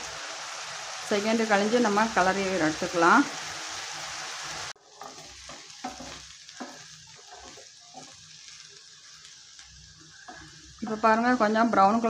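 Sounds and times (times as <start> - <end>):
potatoes sizzling in oil: 0.0 - 12.0
spatula scraping and knocking pan: 4.8 - 8.4.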